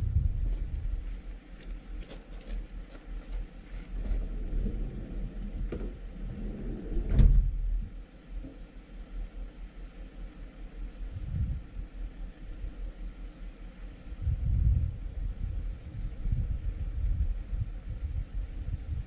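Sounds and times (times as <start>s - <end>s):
low rumble: 0.0s - 1.4s, 3.1s - 8.5s, 10.8s - 12.8s, 14.0s - 19.0s
van door shutting: 4.0s - 7.6s.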